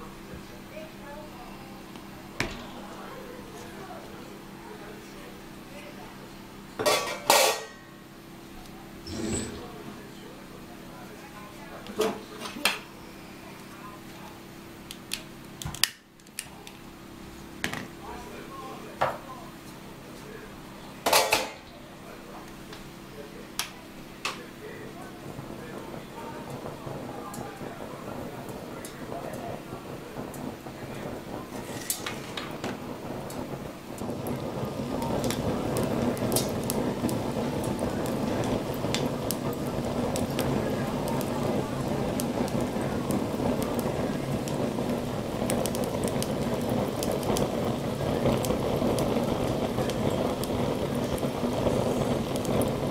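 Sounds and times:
burning coals crackling: 0.0 - 52.9
grill fan rushing: 0.0 - 52.9
steady low hum: 8.0 - 11.9, 21.8 - 52.9.

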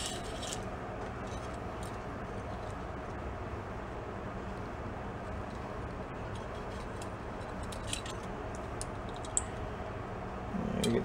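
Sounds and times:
low background hum: 0.0 - 11.0
small metal clicks: 6.3 - 9.5.

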